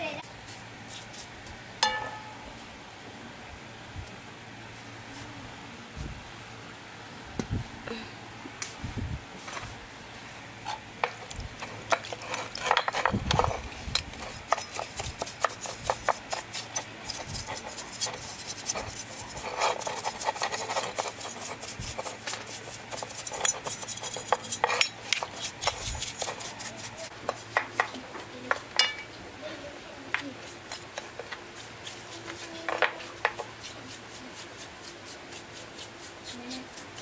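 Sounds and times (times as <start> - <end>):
metal clinking against pan: 1.8 - 2.4
brush bristles scrubbing metal: 11.0 - 28.4, 30.1 - 37.0.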